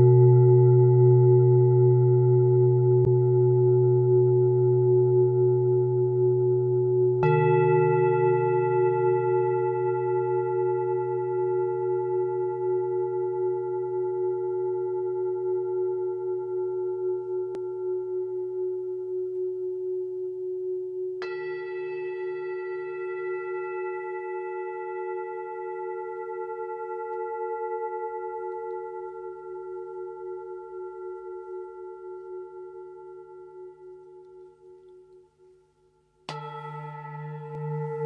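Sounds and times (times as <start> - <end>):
bell-like ringing tone: 36.3 - 38.0.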